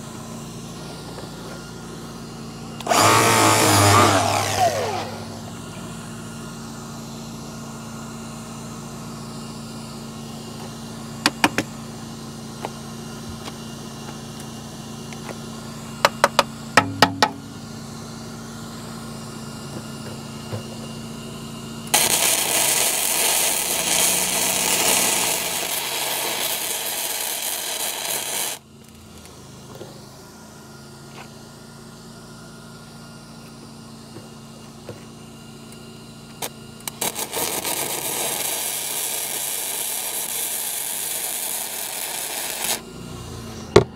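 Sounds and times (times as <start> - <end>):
steady low hum: 0.0 - 8.8, 16.6 - 21.2
welding arc crackling: 2.8 - 5.6, 21.9 - 28.6, 36.4 - 42.8.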